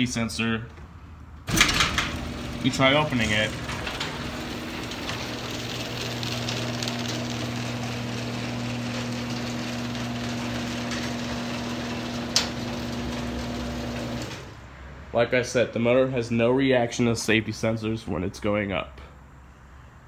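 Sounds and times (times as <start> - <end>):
garage door opener motor humming: 1.5 - 14.6.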